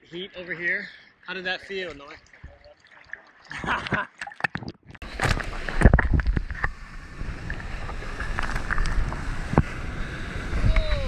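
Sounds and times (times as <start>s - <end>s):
water rushing and splashing: 0.1s - 11.0s
wind thumps on microphone: 5.0s - 11.0s.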